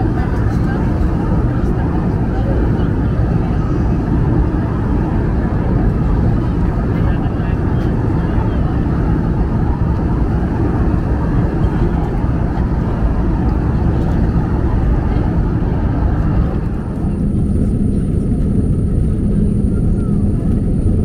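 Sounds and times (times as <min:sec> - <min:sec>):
airplane cabin airflow rush: 0:00.0 - 0:21.0
engine hum: 0:00.0 - 0:21.0
faint high whine: 0:16.7 - 0:21.0.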